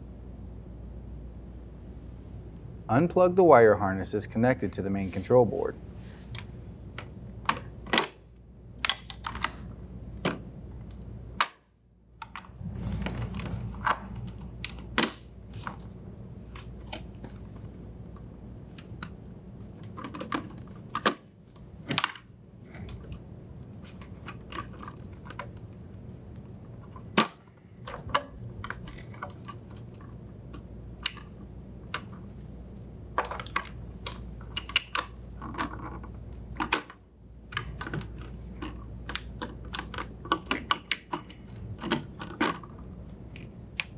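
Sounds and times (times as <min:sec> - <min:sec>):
low steady hum: 0:00.0 - 0:43.9
plastic connectors clicking and snapping: 0:08.8 - 0:09.6.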